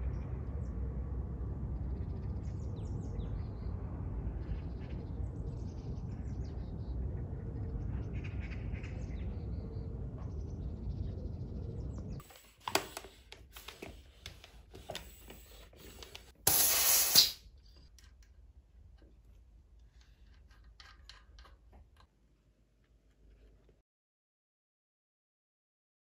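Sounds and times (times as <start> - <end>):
hiss of escaping air: 12.2 - 17.4.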